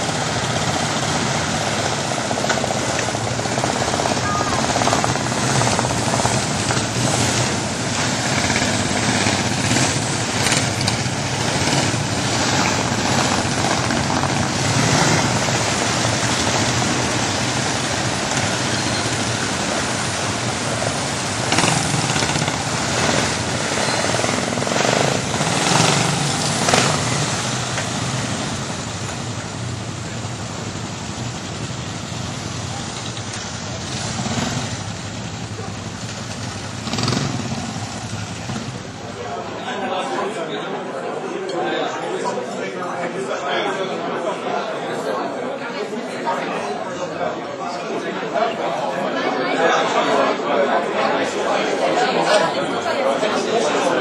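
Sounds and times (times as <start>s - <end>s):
motorcycles riding past: 0.0s - 41.3s.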